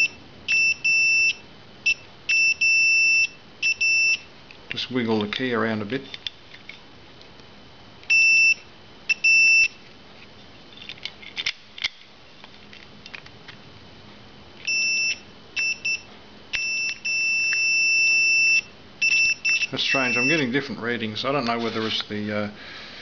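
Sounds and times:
multimeter continuity beeps: 0.0s - 4.3s, 8.1s - 9.8s, 14.6s - 20.6s.

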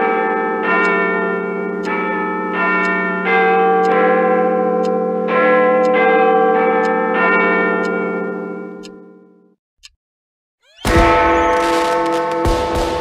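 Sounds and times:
clock-tower bells chiming: 0.0s - 9.5s.

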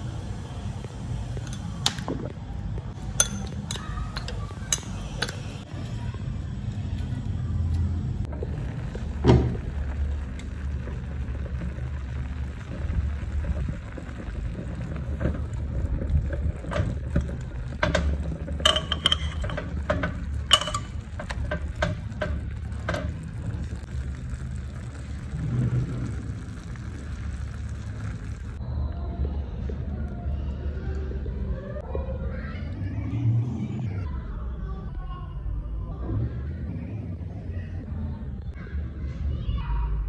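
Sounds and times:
metal tongs clicking on a pot: 3.2s - 5.4s, 17.2s - 23.2s
food sizzling in a pot: 19.7s - 28.6s.

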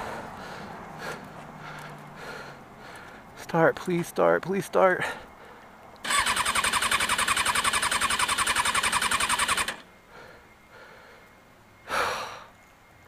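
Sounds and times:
motorcycle starter cranking: 6.0s - 9.9s.

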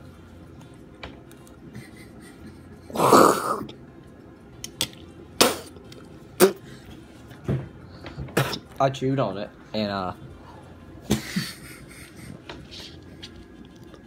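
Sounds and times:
person coughing hard: 2.9s - 3.7s.

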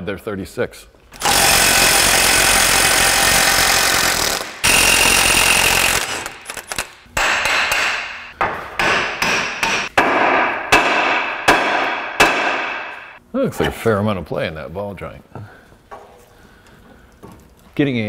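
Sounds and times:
pneumatic tool running: 1.2s - 6.9s.

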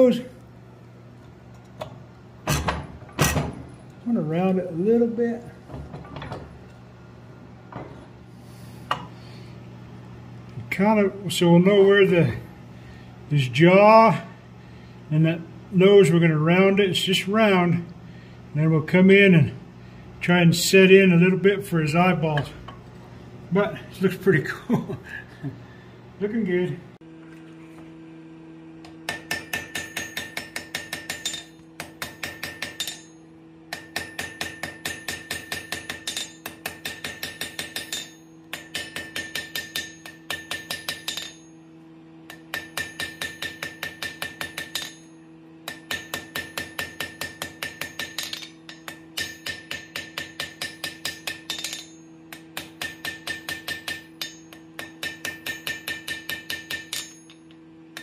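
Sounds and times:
steady low hum: 0.0s - 58.0s
hammer striking steel on anvil: 8.9s - 9.1s, 28.8s - 41.6s, 42.3s - 58.0s.

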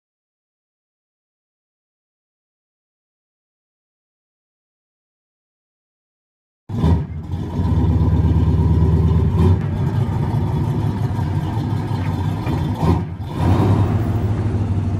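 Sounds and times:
car engine rumbling: 6.7s - 14.9s.

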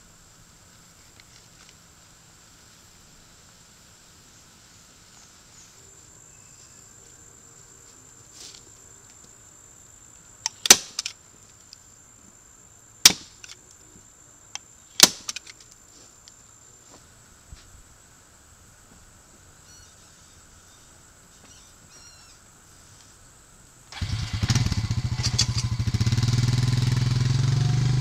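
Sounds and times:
stapler snapping into wood: 10.5s - 11.1s, 15.0s - 15.5s.

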